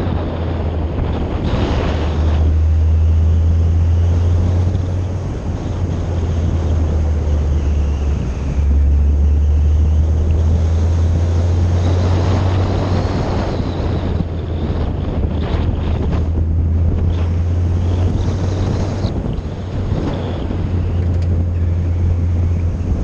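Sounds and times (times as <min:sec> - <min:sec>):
car driving noise: 0:00.0 - 0:23.0
wind rumbling over microphone: 0:00.0 - 0:23.0.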